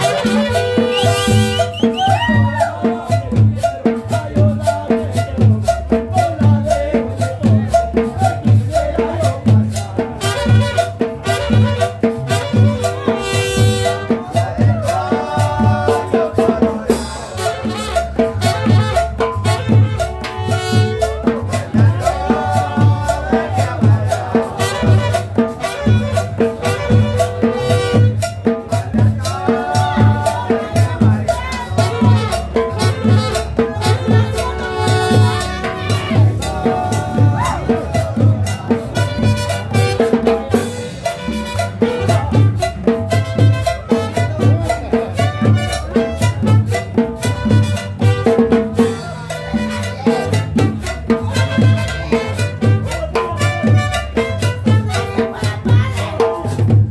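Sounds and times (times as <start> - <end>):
saxophone melody: 0.0 - 2.8, 10.2 - 14.6, 17.2 - 22.1, 24.5 - 28.6, 29.9 - 56.2
conga drum rhythm: 0.0 - 56.9
scraped percussion: 0.0 - 56.9
upright bass: 0.0 - 56.9.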